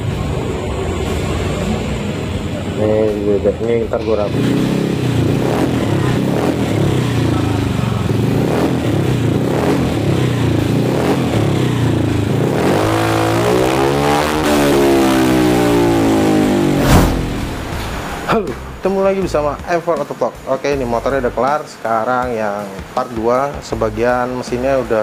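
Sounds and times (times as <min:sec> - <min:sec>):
scooter engine idling and revving: 0:00.0 - 0:16.8.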